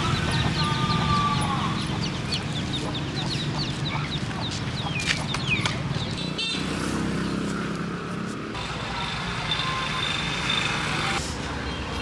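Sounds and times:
chickens clucking: 0:00.0 - 0:05.7.

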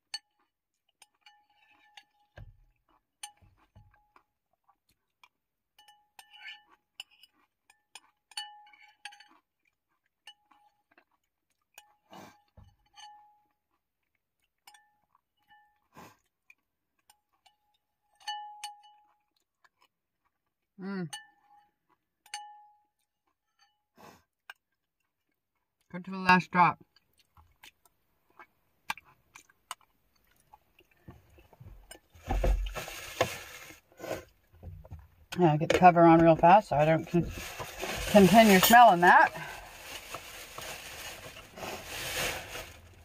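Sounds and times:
soft eating sounds: 0:00.1 - 0:22.2, 0:22.9 - 0:26.0, 0:26.8 - 0:35.4, 0:36.8 - 0:43.0.

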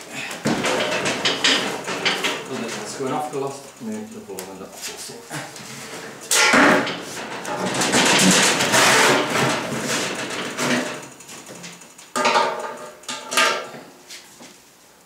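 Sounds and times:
electric arc welding: 0:06.2 - 0:13.2.

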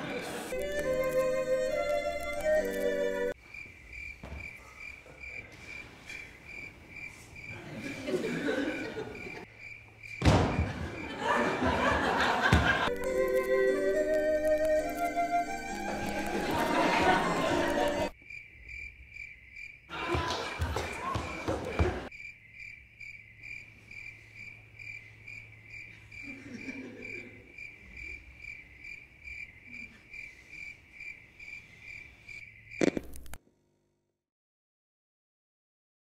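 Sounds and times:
music: 0:00.4 - 0:03.4, 0:12.9 - 0:18.1
cricket-like chirping: 0:03.4 - 0:11.2, 0:18.1 - 0:19.9, 0:22.1 - 0:33.4.

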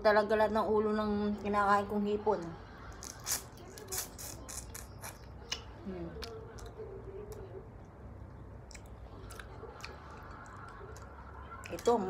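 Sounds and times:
chewing and sucking: 0:02.9 - 0:07.5, 0:08.6 - 0:11.9
wet mouth clicks and smacks: 0:08.7 - 0:11.8.

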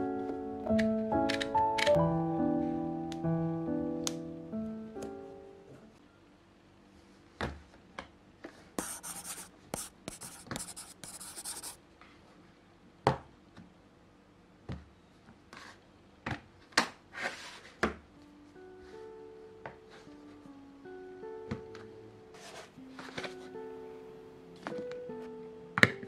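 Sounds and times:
rubbing and scraping on desk: 0:08.8 - 0:11.8.

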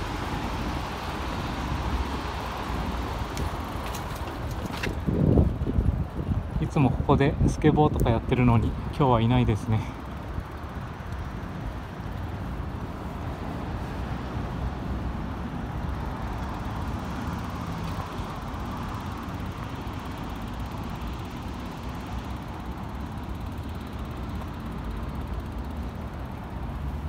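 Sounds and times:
wind rumble on microphone: 0:00.0 - 0:09.5
city traffic: 0:00.0 - 0:27.0.

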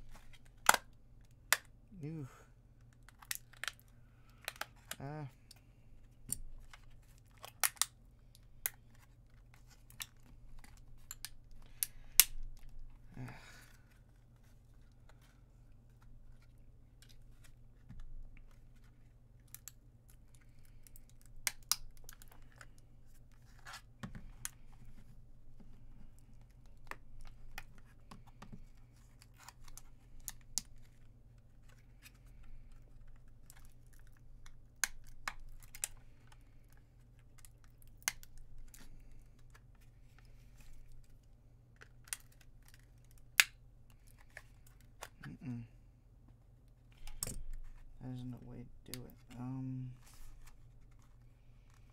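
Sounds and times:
plastic casing clicking and snapping: 0:06.3 - 0:07.9.

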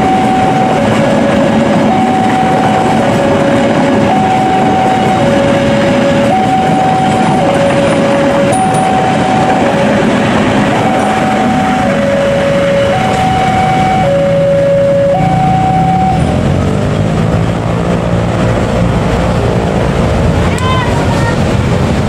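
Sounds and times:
level crossing alarm two-tone: 0:00.0 - 0:16.3
passing train rumble: 0:00.0 - 0:22.0.

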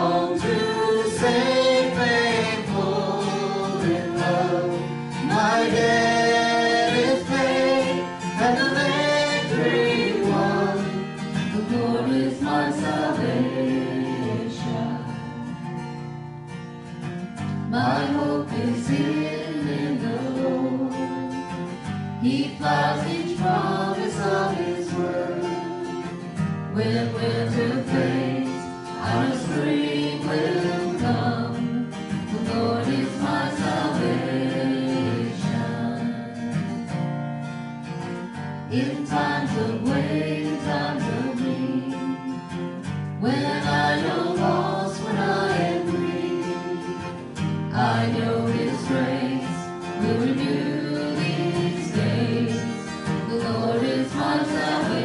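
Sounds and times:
woman singing into microphone: 0:00.0 - 0:15.3, 0:26.8 - 0:36.2
strummed acoustic guitar: 0:00.0 - 0:55.0.

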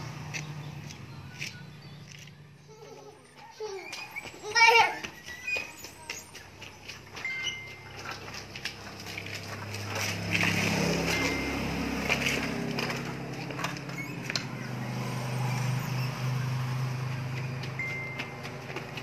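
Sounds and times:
plastic tricycle rattling over concrete: 0:01.4 - 0:15.3, 0:16.7 - 0:19.0.

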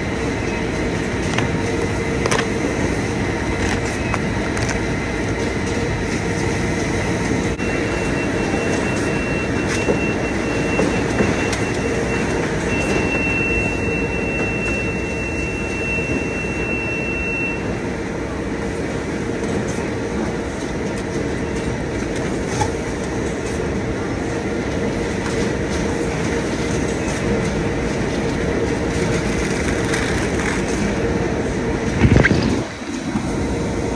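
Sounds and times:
conveyor machinery din: 0:00.0 - 0:33.9
thin high whine: 0:30.3 - 0:33.9.

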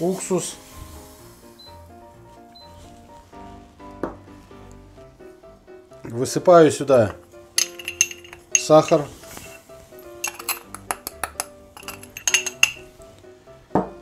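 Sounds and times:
background music: 0:00.0 - 0:14.0
ceramic bowl clinking on saucepan: 0:07.1 - 0:09.6, 0:10.2 - 0:12.9.

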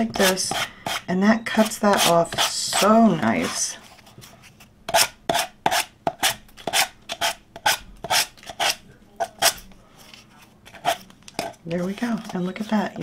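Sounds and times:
nail file scraping wood: 0:04.9 - 0:09.6.

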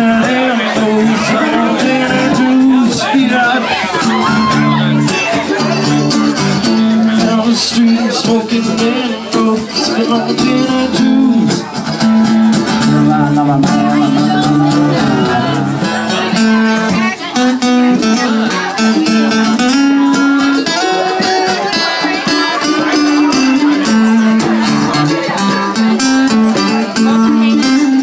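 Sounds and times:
guitar: 0:00.0 - 0:28.0
live band playing: 0:00.0 - 0:28.0.

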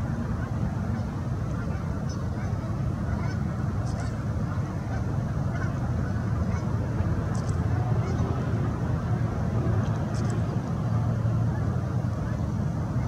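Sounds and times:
steady low rumble: 0:00.0 - 0:13.0
geese honking: 0:00.3 - 0:06.7.

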